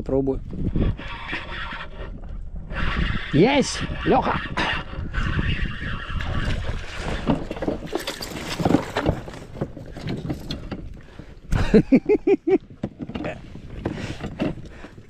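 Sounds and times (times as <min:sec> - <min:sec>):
water splashing: 0:05.6 - 0:09.5.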